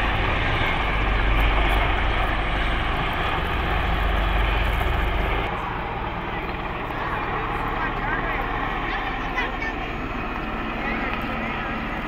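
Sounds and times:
helicopters flying overhead: 0.0s - 12.0s.

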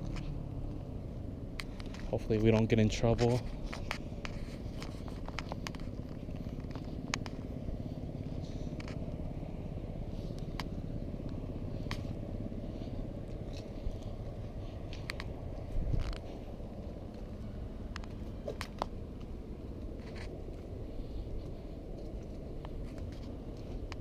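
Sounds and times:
low outdoor rumble: 0.0s - 24.0s
light clicks: 14.8s - 16.4s.

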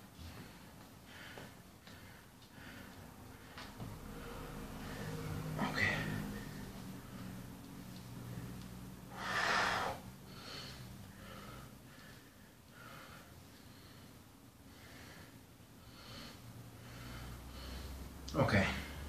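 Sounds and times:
man breathing hard: 0.1s - 7.4s, 8.2s - 18.2s.

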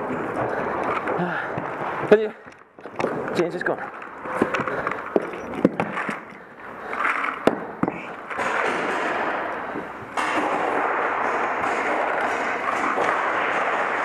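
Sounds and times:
gunshot pops echoing in hall: 7.4s - 9.6s, 10.2s - 14.0s.

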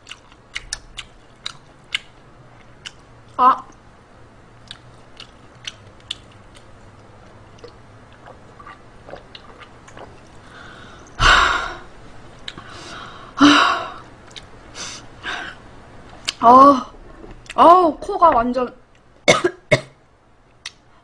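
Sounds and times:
chewing clicks: 0.0s - 3.0s, 4.6s - 6.7s.

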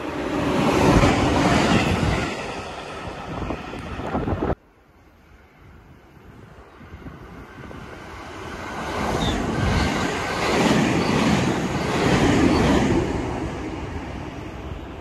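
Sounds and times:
train passing at speed: 0.0s - 15.0s.

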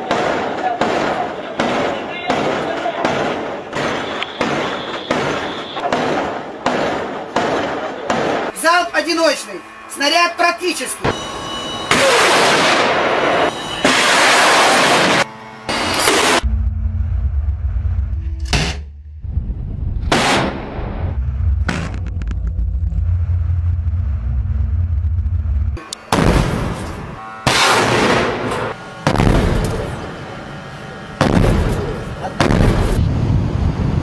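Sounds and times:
deck gun firing: 0.0s - 8.5s
low steady rumble: 16.4s - 27.2s.

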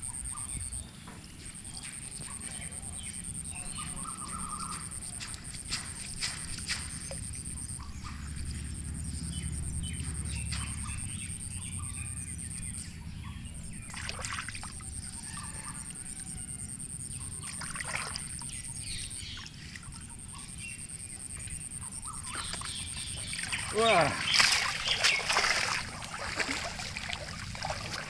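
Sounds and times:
birds calling: 0.0s - 28.0s
water sloshing and dripping: 3.8s - 8.9s, 9.6s - 11.5s, 13.8s - 16.0s, 17.2s - 20.6s, 22.0s - 28.0s.

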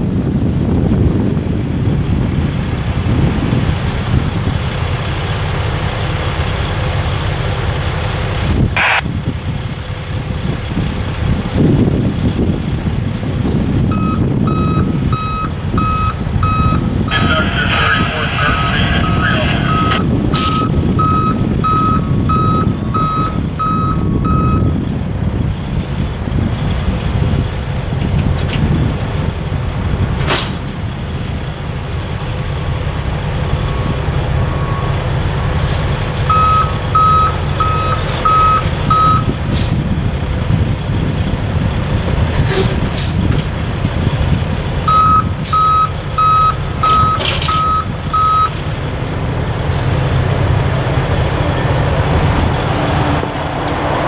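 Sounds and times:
diesel engine idling: 0.0s - 54.0s
backup alarm beeping: 8.8s - 9.0s, 13.9s - 24.7s, 36.3s - 39.3s, 44.9s - 48.6s.

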